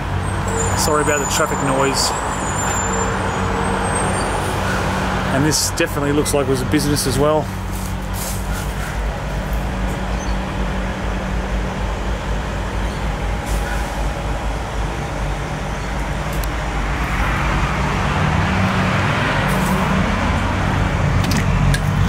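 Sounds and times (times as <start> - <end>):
road traffic noise: 0.0 - 22.0
vehicle passing close by: 16.6 - 22.0.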